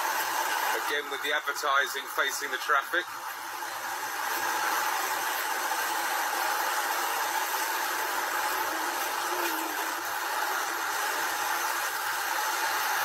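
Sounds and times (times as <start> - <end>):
car tyres on wet road: 3.2 - 13.0.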